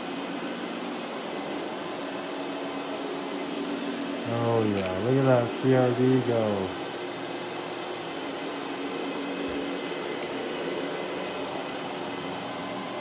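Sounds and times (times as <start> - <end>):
carpet cleaner motor hum: 0.0 - 13.0.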